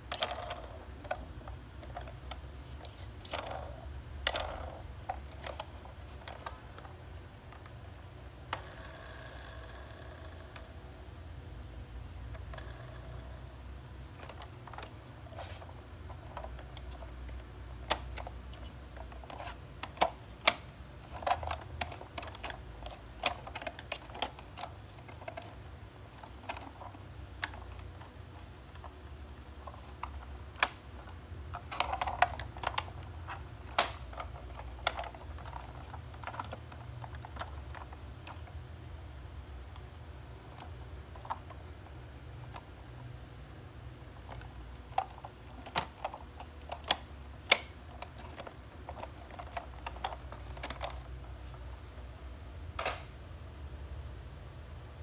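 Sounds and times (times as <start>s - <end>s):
low steady hum: 0.0s - 55.0s
plastic toy clicking and clacking: 0.1s - 1.2s, 1.8s - 6.9s, 17.8s - 28.1s, 29.6s - 38.6s, 44.2s - 51.2s.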